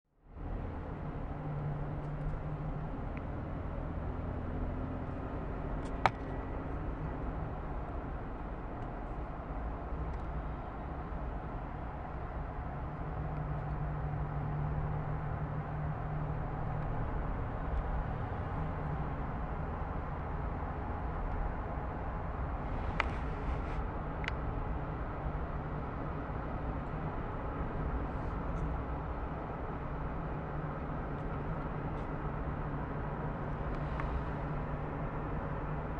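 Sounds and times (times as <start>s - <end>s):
car engine rumble: 0.2s - 35.9s.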